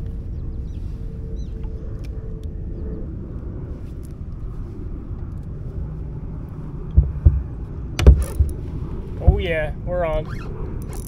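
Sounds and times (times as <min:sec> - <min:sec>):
wind buffeting microphone: 0:00.0 - 0:11.0
dull knocks: 0:06.9 - 0:08.6, 0:09.2 - 0:09.5.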